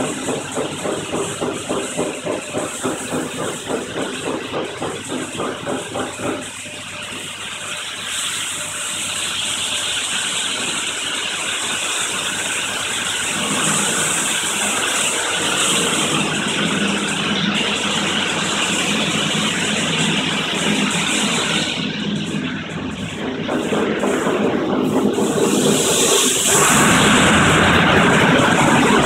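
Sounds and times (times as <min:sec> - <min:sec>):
car wash water spray hissing: 0:00.0 - 0:06.6, 0:07.3 - 0:29.0.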